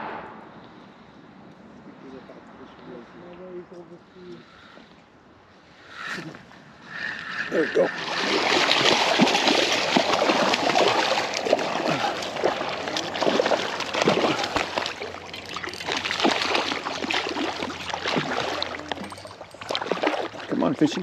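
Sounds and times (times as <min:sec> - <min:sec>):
water splashing and sloshing: 0:06.7 - 0:21.0.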